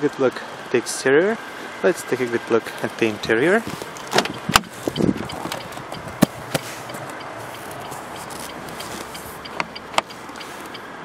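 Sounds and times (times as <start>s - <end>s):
car door swinging open: 3.6s - 10.1s
car door handle click: 4.0s - 7.2s, 9.5s - 10.1s.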